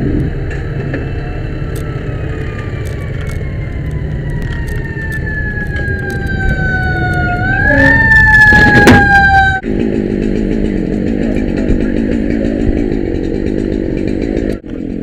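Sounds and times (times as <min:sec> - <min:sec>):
truck engine rumble: 0:00.0 - 0:15.0
fire truck siren winding down: 0:01.0 - 0:09.7
loud clatter: 0:08.4 - 0:15.0
small engine running: 0:09.6 - 0:15.0.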